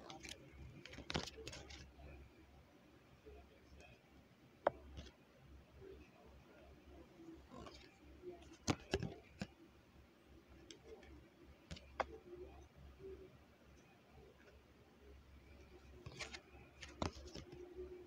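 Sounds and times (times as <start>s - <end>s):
cards clicking and tapping on wood: 8.6s - 9.5s, 16.1s - 17.6s.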